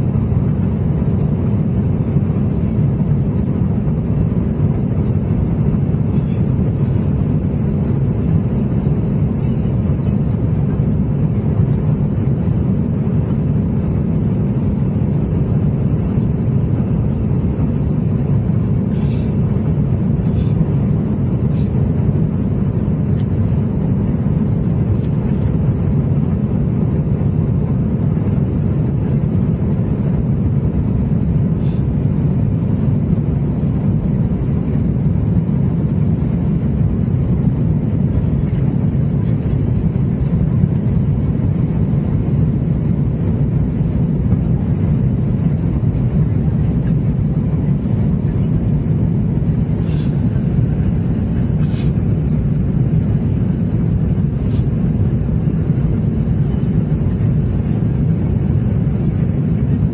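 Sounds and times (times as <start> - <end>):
airplane cabin engine rumble: 0.0 - 59.9.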